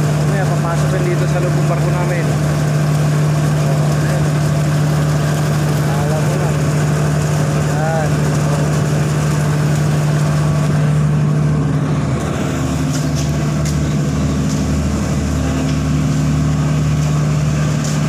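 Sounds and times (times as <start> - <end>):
engine droning: 0.0 - 18.0.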